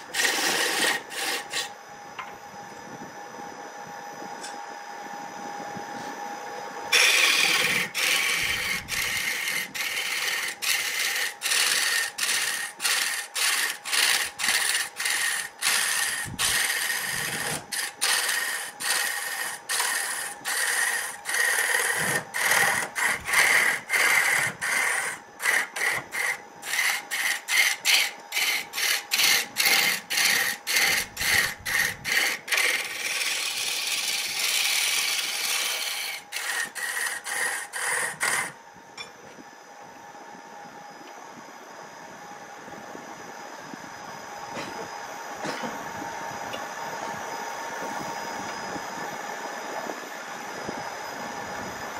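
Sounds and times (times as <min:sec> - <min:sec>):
turning tool shaving wood: 0:00.0 - 0:01.7, 0:06.9 - 0:38.6
wood lathe humming: 0:00.0 - 0:01.7, 0:06.9 - 0:38.6.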